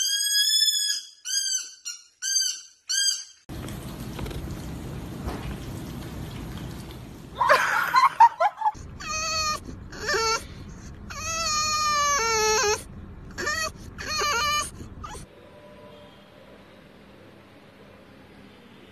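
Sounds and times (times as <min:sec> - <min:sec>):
dog whining: 0:08.8 - 0:15.3.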